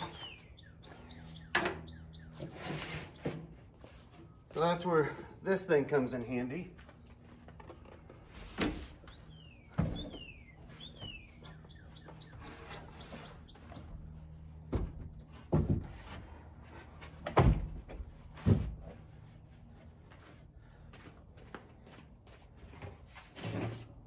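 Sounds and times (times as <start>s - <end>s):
bird chirping: 0.0s - 4.8s, 8.8s - 14.6s.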